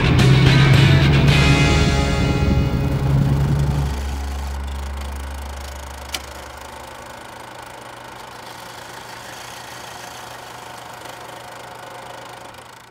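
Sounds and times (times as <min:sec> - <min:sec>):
closing music: 0:00.0 - 0:07.0
film projector running: 0:00.0 - 0:12.9.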